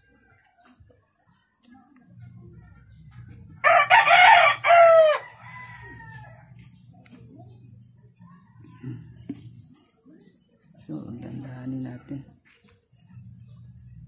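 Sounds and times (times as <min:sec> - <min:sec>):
rooster crowing: 0:03.6 - 0:06.5.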